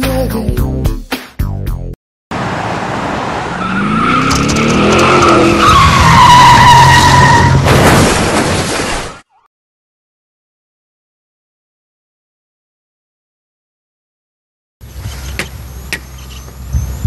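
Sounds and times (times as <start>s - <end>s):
engine revving: 3.1s - 6.8s
tyres screeching in a skid: 3.4s - 9.2s
harsh collision crash: 7.4s - 9.2s.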